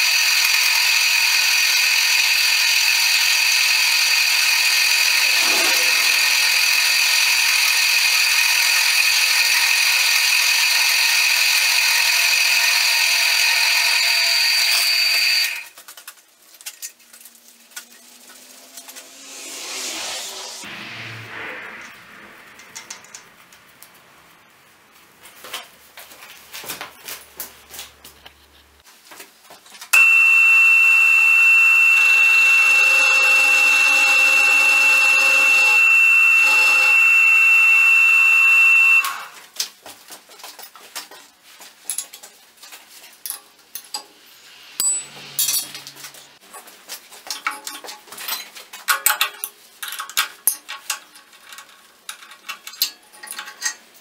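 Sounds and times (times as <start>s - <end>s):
milling machine squealing: 4.6s - 8.2s, 11.6s - 15.7s, 30.0s - 39.3s.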